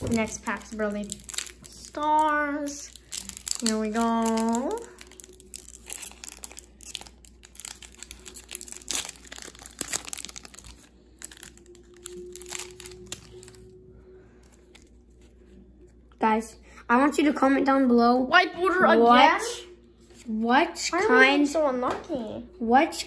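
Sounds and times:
foil wrapper crinkling and tearing: 0:00.0 - 0:15.3.

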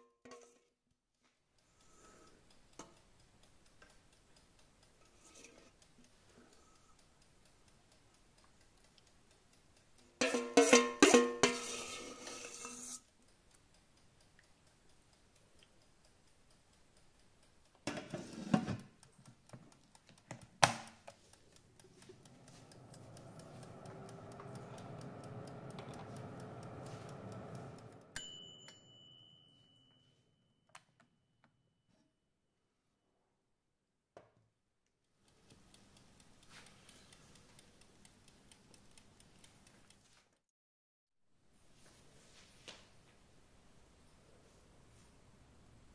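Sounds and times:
metal spoon clattering on pot: 0:10.2 - 0:13.0
oven fan motor humming: 0:20.9 - 0:28.2.

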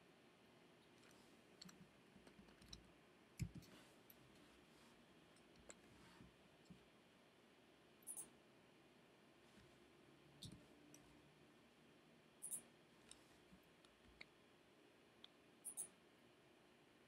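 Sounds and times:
computer mouse clicks: 0:03.4 - 0:03.7, 0:08.0 - 0:08.3, 0:15.2 - 0:15.9.

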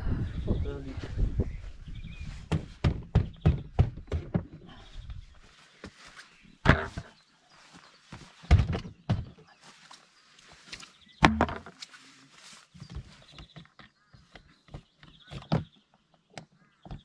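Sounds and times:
dull thumps and knocks: 0:02.4 - 0:04.8, 0:06.6 - 0:07.2, 0:08.1 - 0:09.4, 0:11.2 - 0:11.8.

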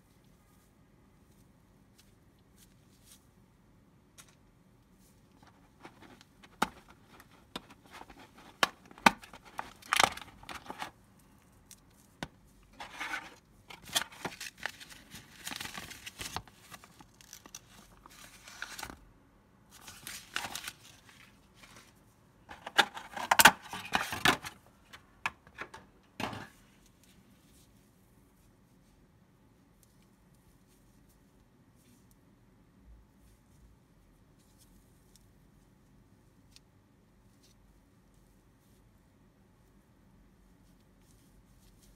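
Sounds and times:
plastic and paper crinkling: 0:04.2 - 0:19.0, 0:19.7 - 0:25.0.

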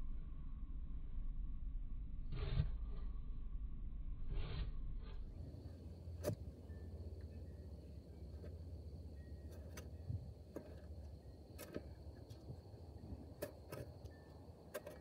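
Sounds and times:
shovel digging into clay soil: 0:02.3 - 0:03.1, 0:06.2 - 0:06.5, 0:10.5 - 0:12.5, 0:13.2 - 0:15.0.

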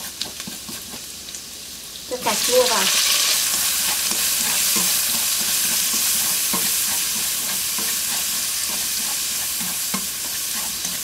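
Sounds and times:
tomatoes sizzling in hot oil: 0:00.0 - 0:11.0
chopsticks tapping wok: 0:03.5 - 0:11.0.

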